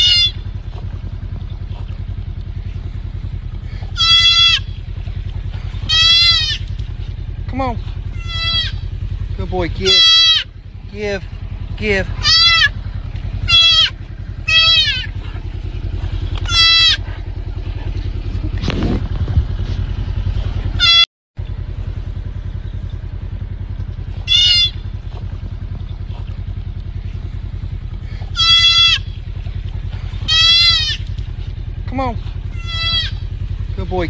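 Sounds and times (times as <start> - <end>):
fawn bleating: 0.0 - 0.4, 3.9 - 4.8, 5.8 - 6.8, 8.1 - 8.8, 9.8 - 10.6, 12.2 - 12.8, 13.4 - 15.2, 16.4 - 17.1, 20.8 - 21.0, 24.2 - 24.8, 28.3 - 29.2, 30.2 - 31.2, 32.5 - 33.2
vehicle engine idling: 0.0 - 34.0.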